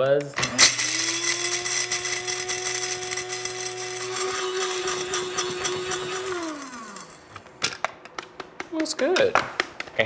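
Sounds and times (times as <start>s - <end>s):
spice grinder motor hum: 0.3s - 7.8s.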